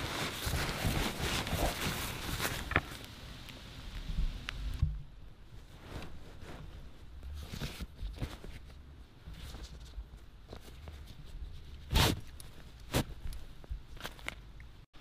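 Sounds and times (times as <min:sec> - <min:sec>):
fabric rustling: 0:00.0 - 0:03.0, 0:05.4 - 0:14.3.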